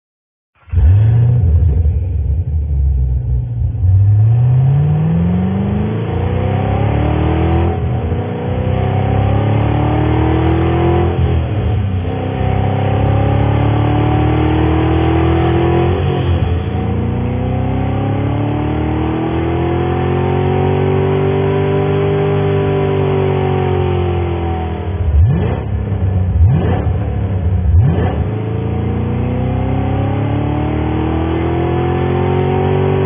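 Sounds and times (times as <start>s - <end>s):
car engine accelerating: 0.6s - 33.0s.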